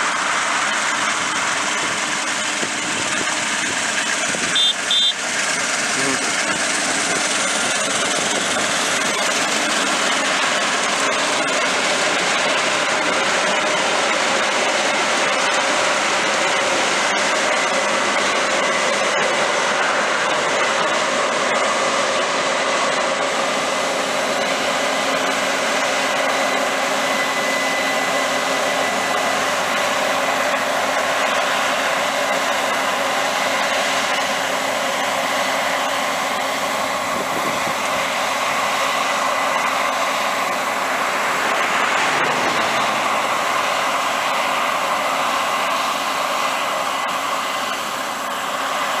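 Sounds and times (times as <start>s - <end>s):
combine harvester whirring: 0.0s - 49.0s
faint high whine: 4.5s - 5.2s.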